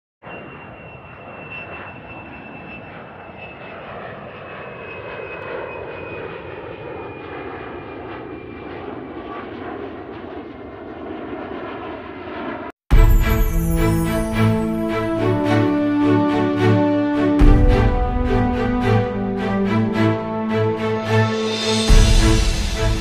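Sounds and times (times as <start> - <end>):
faint high whine: 0.2 - 7.2
airplane engine drone: 0.2 - 23.0.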